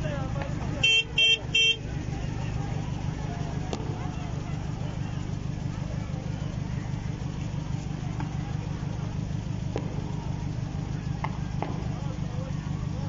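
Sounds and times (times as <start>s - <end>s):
distant crowd voices: 0.0s - 13.0s
idling cars rumble: 0.0s - 13.0s
sharp crack: 9.6s - 12.2s.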